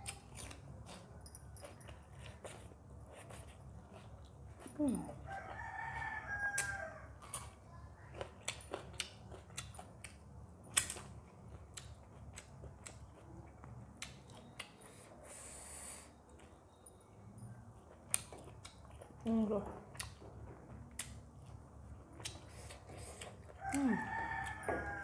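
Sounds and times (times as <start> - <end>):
wet clicks and smacks of eating: 0.0 - 4.3, 6.5 - 7.6, 8.2 - 14.9, 17.9 - 19.1, 19.8 - 24.6
rooster crowing: 5.2 - 7.2, 23.6 - 25.0.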